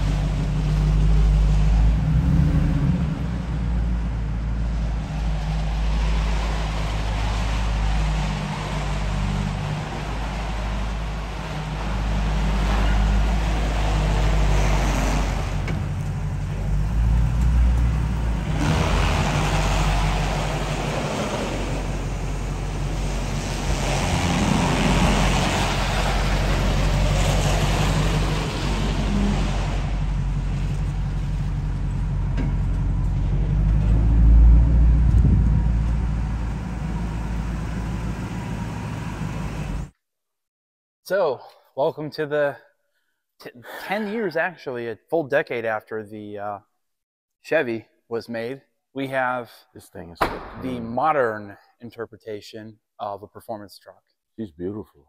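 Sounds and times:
road and wind noise: 0.0 - 39.9
truck engine droning: 0.0 - 39.9
low boom: 23.6 - 38.0, 50.2 - 51.2.

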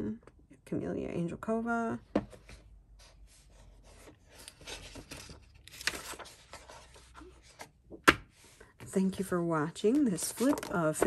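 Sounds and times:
paper pages turning: 4.0 - 7.7, 9.9 - 11.0.

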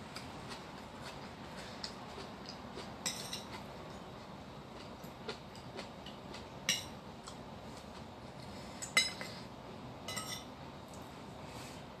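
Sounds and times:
spoon clinking against ceramic bowl: 3.0 - 3.5, 10.1 - 10.5.

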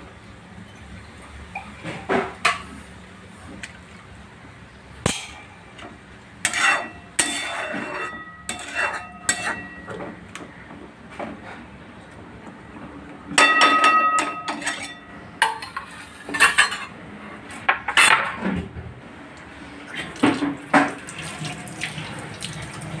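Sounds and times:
spatula knocking metal pan: 13.4 - 14.9.

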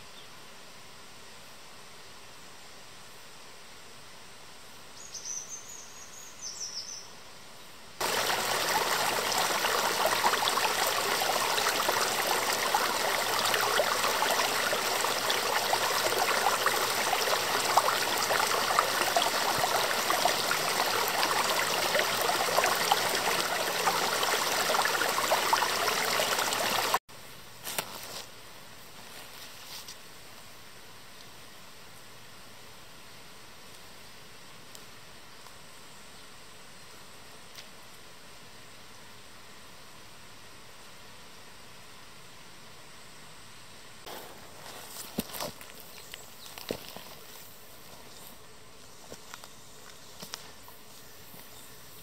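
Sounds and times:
stream trickling over rocks: 8.0 - 27.0, 44.1 - 48.2.

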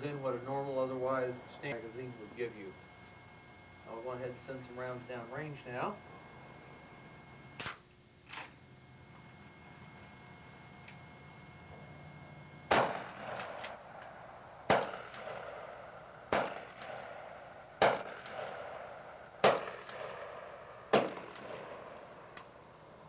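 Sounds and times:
shotgun shots: 12.7 - 14.0, 14.6 - 22.4.

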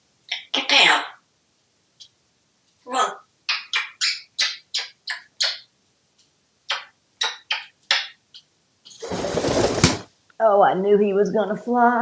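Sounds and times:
parrot raspy chirps: 0.3 - 1.2, 2.9 - 5.7, 6.7 - 9.0.

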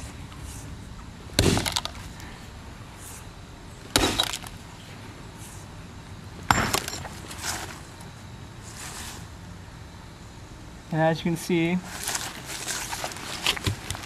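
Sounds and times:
axe striking phone on stone: 4.0 - 4.5, 6.5 - 7.1.

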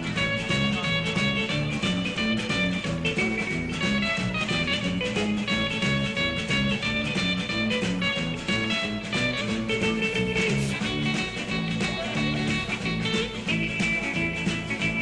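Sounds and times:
bass line: 0.0 - 15.0
guitar-led instrumental music: 0.0 - 15.0.

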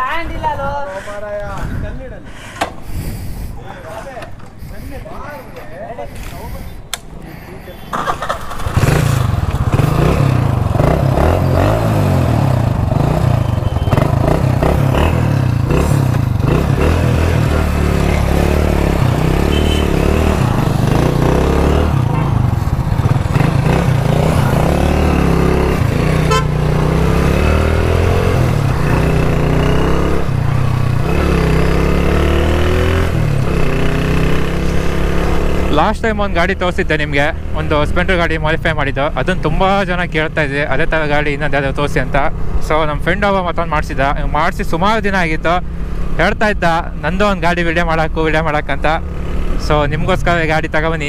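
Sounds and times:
motorcycle engine revving: 7.9 - 42.7, 47.3 - 51.0.

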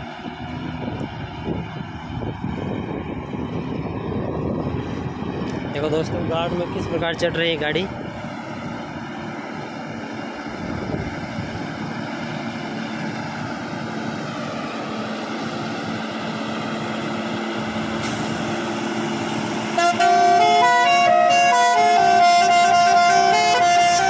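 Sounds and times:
diesel truck engine pulling uphill: 0.0 - 24.0
musical truck horn: 19.7 - 24.0.

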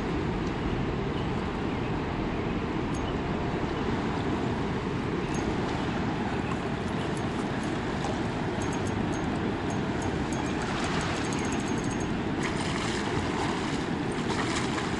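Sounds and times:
wind on microphone: 0.0 - 14.9
fast river current rushing: 3.2 - 14.9.

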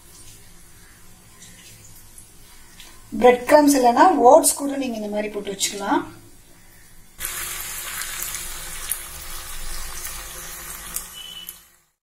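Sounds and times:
oil sizzling and bubbling: 0.0 - 3.3, 7.0 - 12.0
oil crackling: 7.2 - 11.8.

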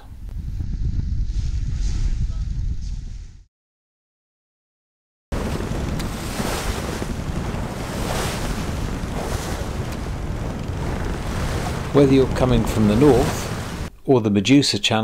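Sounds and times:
wind blowing on microphone: 0.0 - 3.5, 5.3 - 13.9
choppy water rushing along hull: 5.3 - 13.9.

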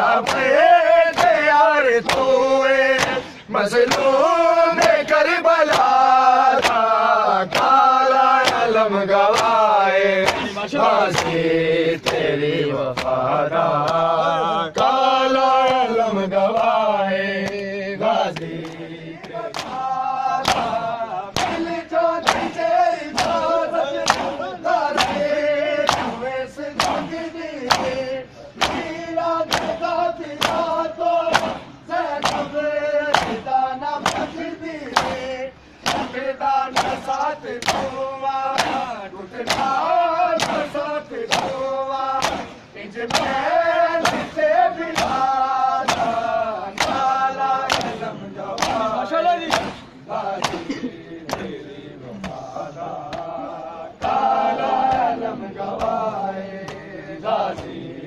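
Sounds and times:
men chanting in chorus: 0.0 - 58.0
hands slapping bare chests: 0.2 - 11.4, 17.4 - 17.7, 18.3 - 50.7, 51.3 - 51.6, 54.0 - 56.0, 56.6 - 56.9.

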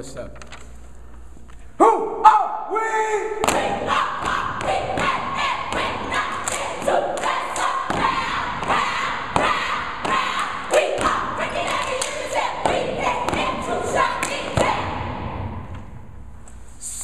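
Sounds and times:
group shouting a chant: 1.8 - 15.2
hand claps: 6.3 - 8.0, 10.0 - 13.4, 14.2 - 14.7.

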